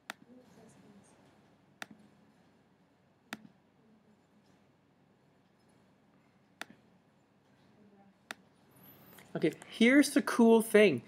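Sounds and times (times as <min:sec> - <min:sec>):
computer mouse clicks: 0:03.3 - 0:03.6.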